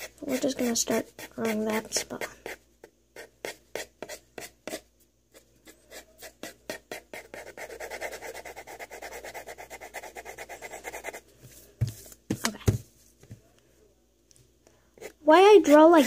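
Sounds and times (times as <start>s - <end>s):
pencil scratching on paper: 0.0s - 2.6s, 3.2s - 11.2s.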